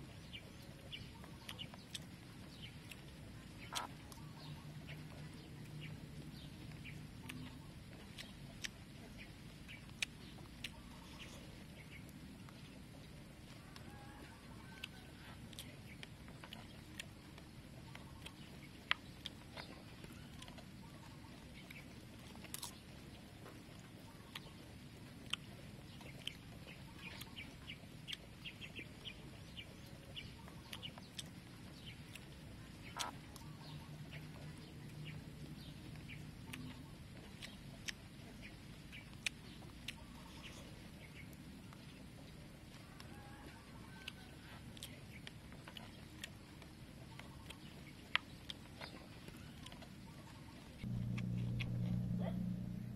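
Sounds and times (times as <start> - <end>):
faint bird calls: 42.8 - 52.9.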